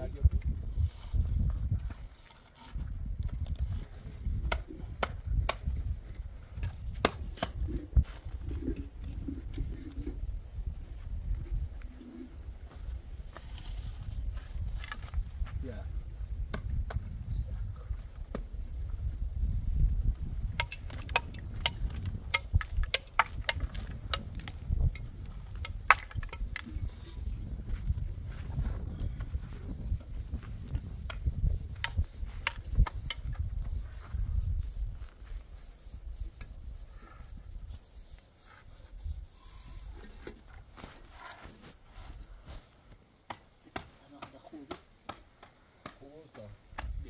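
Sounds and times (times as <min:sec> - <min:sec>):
concrete block scraping on mortar: 0:37.8 - 0:42.9.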